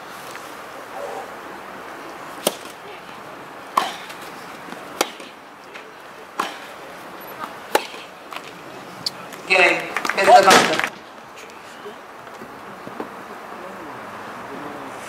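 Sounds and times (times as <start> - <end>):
tennis ball hit by racket: 2.4 - 3.0, 3.7 - 8.6.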